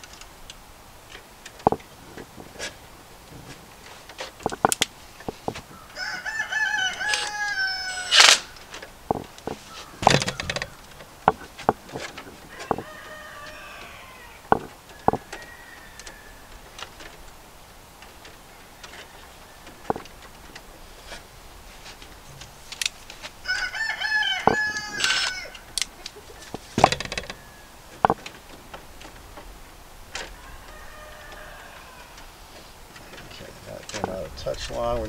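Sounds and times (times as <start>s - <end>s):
rooster crowing: 5.8s - 8.6s, 12.4s - 17.1s, 23.4s - 25.8s, 26.8s - 28.2s, 30.1s - 32.6s
clicks and knocks on breaker panel: 9.1s - 12.8s, 26.8s - 27.4s.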